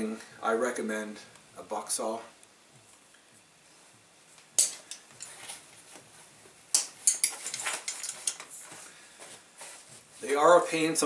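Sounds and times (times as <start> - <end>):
metal saw frame clicking and rattling: 6.8 - 8.5.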